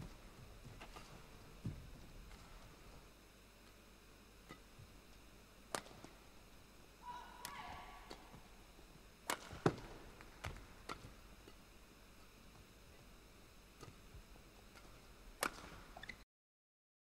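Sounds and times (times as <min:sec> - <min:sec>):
rackets hitting shuttlecock: 0:05.7 - 0:06.2, 0:07.1 - 0:08.5, 0:09.2 - 0:11.6, 0:14.7 - 0:15.9.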